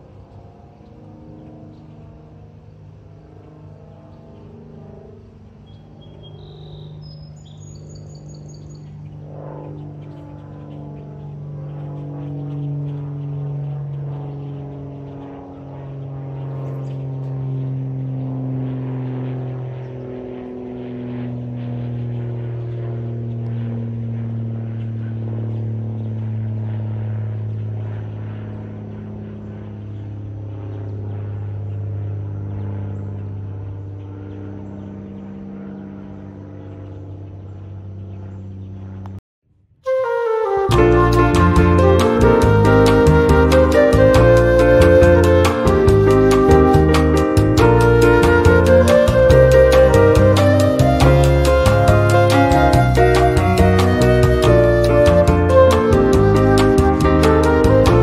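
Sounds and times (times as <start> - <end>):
propeller aircraft droning: 0.0 - 58.0
bird chirping: 5.6 - 15.4.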